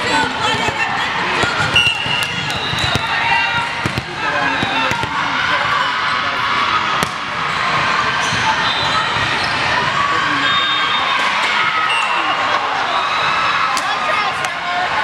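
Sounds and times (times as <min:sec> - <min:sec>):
din of many voices: 0:00.0 - 0:15.0
balls bouncing: 0:00.4 - 0:05.2, 0:07.0 - 0:07.3
volleyball being hit: 0:01.4 - 0:05.2, 0:07.0 - 0:07.3.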